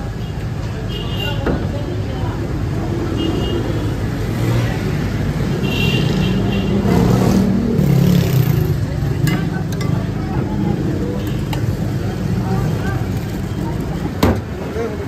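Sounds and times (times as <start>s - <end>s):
low rumble of motor traffic: 0.0s - 15.0s
people talking: 0.6s - 5.2s, 8.5s - 15.0s.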